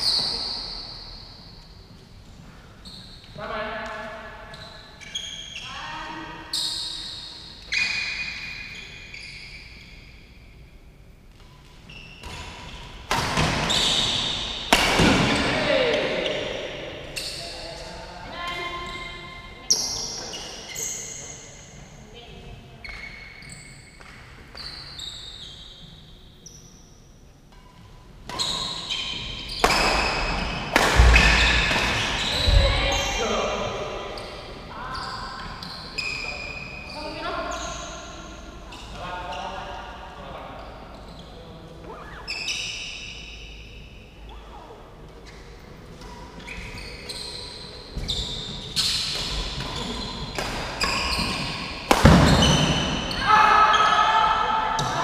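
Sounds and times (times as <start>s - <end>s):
sneakers squeaking on court: 0.0s - 1.3s, 2.8s - 5.8s, 6.5s - 10.5s, 11.3s - 17.5s, 18.4s - 26.9s, 27.6s - 39.4s, 40.6s - 55.0s
rackets hitting shuttlecock: 13.1s - 16.6s, 29.5s - 32.7s, 48.8s - 53.2s
racket striking shuttlecock: 29.6s - 32.2s, 50.3s - 52.8s.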